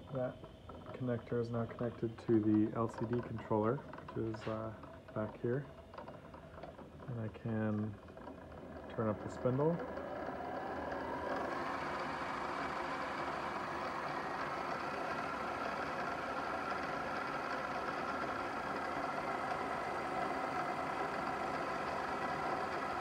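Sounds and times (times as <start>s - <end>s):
mill spindle whine: 0.0s - 23.0s.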